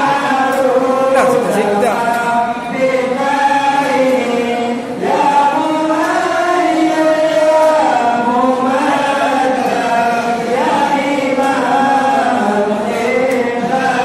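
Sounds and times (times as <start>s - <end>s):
men chanting in unison: 0.0s - 14.0s.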